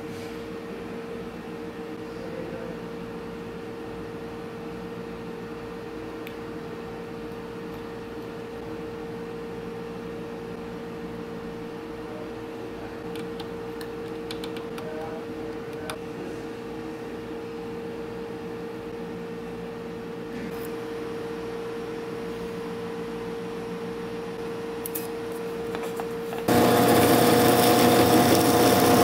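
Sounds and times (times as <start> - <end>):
machine hum: 26.0 - 29.0.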